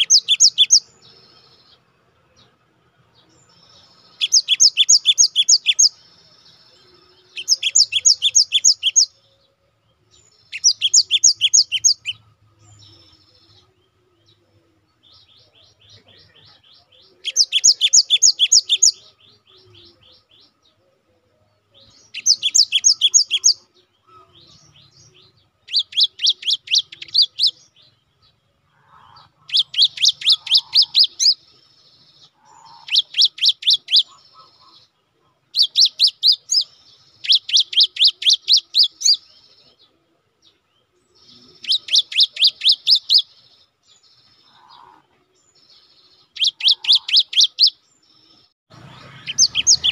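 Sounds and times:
bird singing rapid high notes: 0.0 - 1.8, 3.5 - 6.6, 7.2 - 9.2, 10.2 - 13.7, 15.2 - 20.5, 21.9 - 28.0, 29.0 - 34.9, 35.5 - 39.3, 41.2 - 44.6, 46.0 - 47.8, 48.7 - 49.9
soft bird twittering: 0.0 - 49.9.

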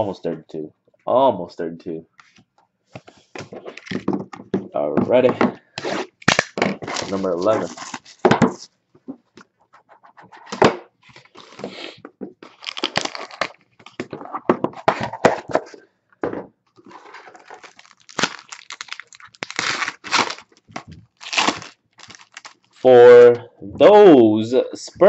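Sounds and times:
plastic wrapper crinkling and tearing: 3.7 - 4.1, 6.1 - 8.2, 12.4 - 14.0, 16.8 - 22.9
cardboard box opening: 5.8 - 8.2.

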